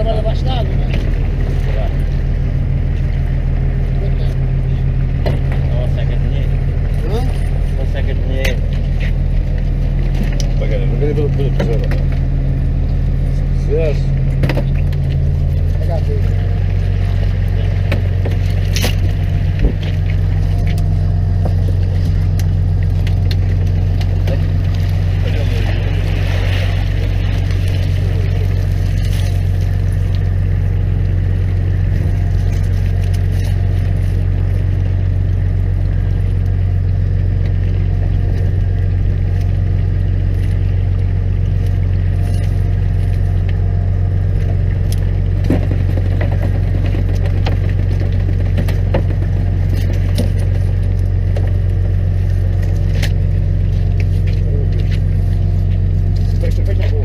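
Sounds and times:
boat engine humming: 0.0 - 57.0
knocks and rattles of fish traps: 4.4 - 12.8, 14.1 - 57.0.

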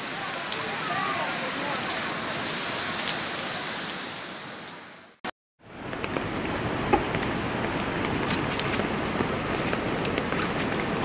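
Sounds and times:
heavy rain hiss: 0.0 - 5.2
rushing floodwater: 0.0 - 11.0.

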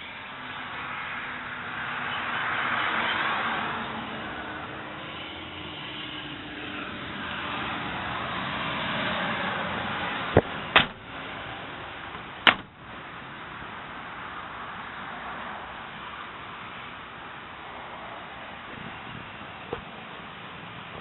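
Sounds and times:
car door click: 10.4 - 11.0, 12.4 - 12.7
car door slamming: 10.4 - 11.2, 12.2 - 12.8, 19.7 - 19.9.

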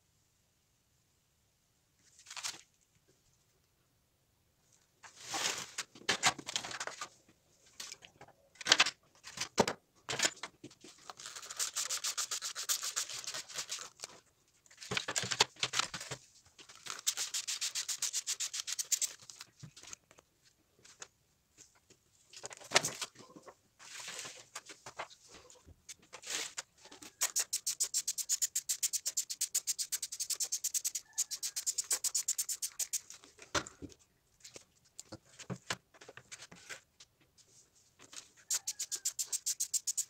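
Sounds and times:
foil crinkling: 11.0 - 14.1, 16.7 - 20.0, 38.6 - 40.0
fast even rubbing in a tray: 11.4 - 14.0, 17.0 - 19.2, 27.1 - 33.1, 38.5 - 40.0.

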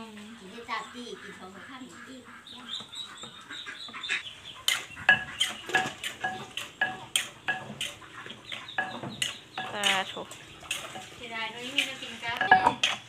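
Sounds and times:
metal bowl clinking and ringing: 12.4 - 12.8.

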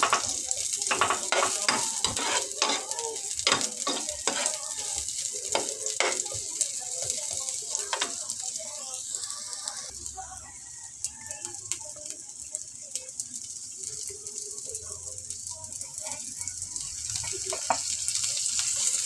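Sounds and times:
metal spatula scraping a pan: 0.0 - 6.4
oil sizzling in a frying pan: 0.0 - 19.0.

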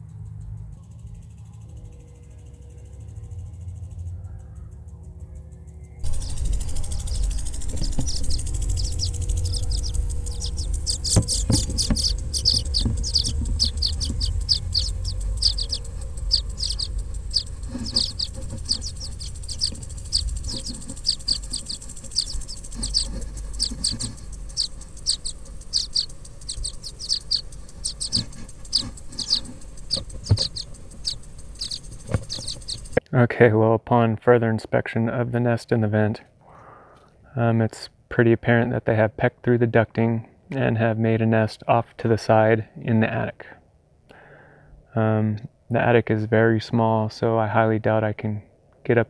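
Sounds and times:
baby birds chirping: 6.0 - 33.0
camera knocking in duct: 11.1 - 14.2.

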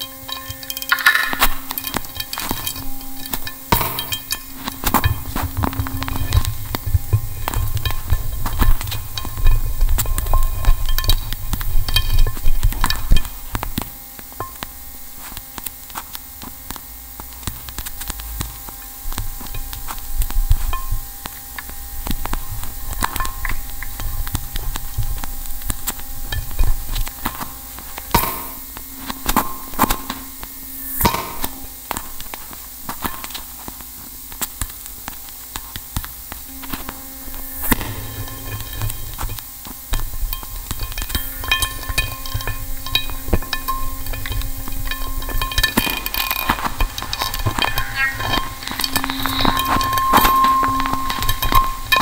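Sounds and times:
clicks and crackles: 0.0 - 52.0
electrical hum of held tones: 0.0 - 52.0
brief high tones: 47.5 - 51.8.

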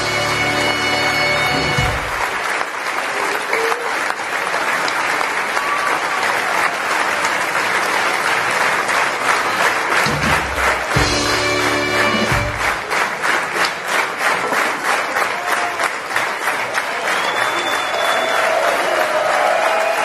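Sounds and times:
band music: 0.0 - 2.4, 9.4 - 13.2
audience applauding: 0.0 - 20.0.

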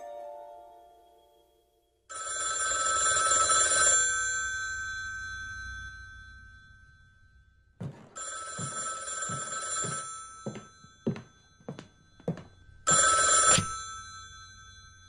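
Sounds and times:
telephone bell ringing: 2.1 - 6.4, 7.8 - 15.0
slow footsteps: 7.8 - 13.2.

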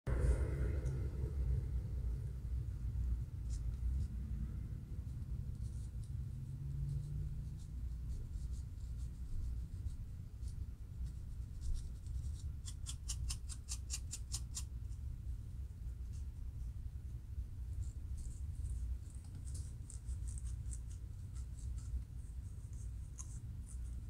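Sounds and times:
low hum: 0.1 - 12.7
metal comb scratching scalp: 11.6 - 14.7, 18.1 - 22.0.

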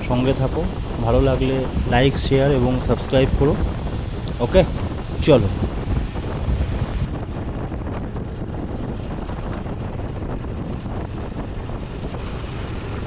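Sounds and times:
road noise: 0.0 - 13.0
wind rush on microphone: 0.0 - 13.0
motorcycle engine: 3.6 - 13.0.

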